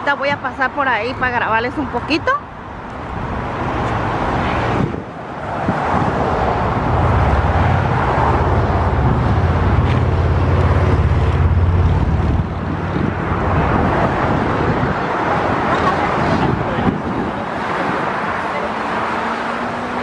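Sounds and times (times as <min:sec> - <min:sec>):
passing cars: 0:00.0 - 0:20.0
deep low rumble: 0:06.8 - 0:14.7.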